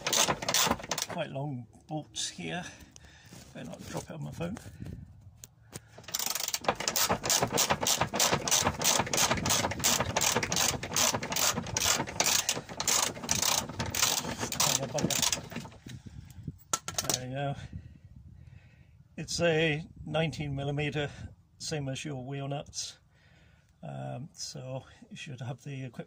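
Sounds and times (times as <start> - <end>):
socket ratchet clicking: 0.0 - 1.2, 6.0 - 15.6.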